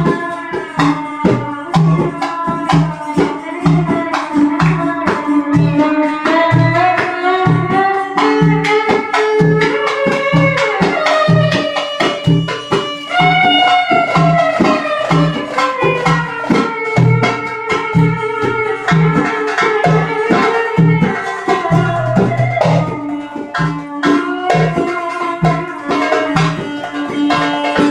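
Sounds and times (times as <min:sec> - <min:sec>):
goblet drum rhythm: 0:00.0 - 0:27.9.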